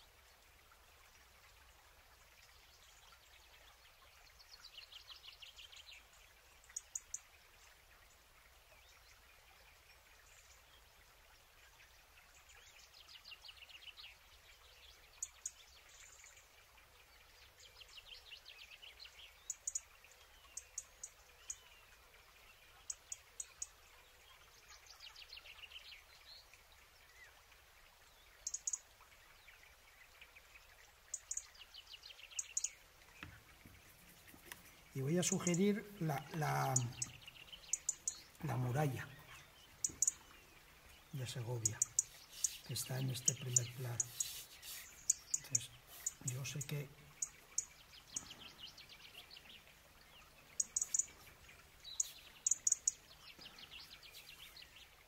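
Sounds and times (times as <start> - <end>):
high bird chirps: 32.3 - 32.8, 35.2 - 40.3, 41.1 - 49.5, 50.5 - 54.7.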